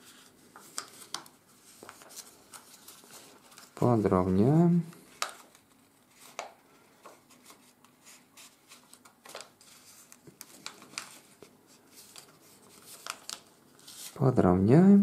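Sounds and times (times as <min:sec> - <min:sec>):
paper rustling and crinkling: 0:00.0 - 0:14.3.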